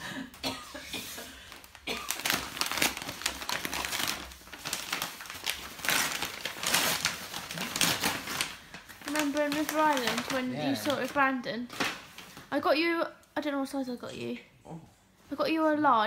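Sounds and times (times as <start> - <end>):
wrapping paper crinkling and tearing: 1.5 - 12.6.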